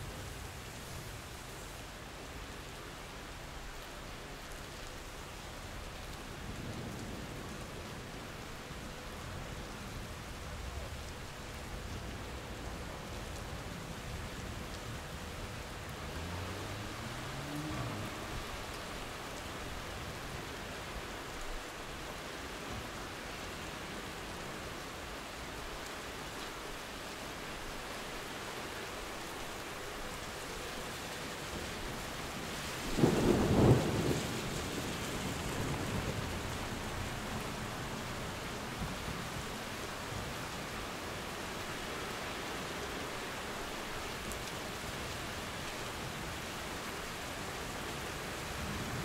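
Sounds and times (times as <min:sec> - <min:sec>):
steady rain: 0:00.0 - 0:49.0
thunder clap rumbling: 0:33.0 - 0:36.6.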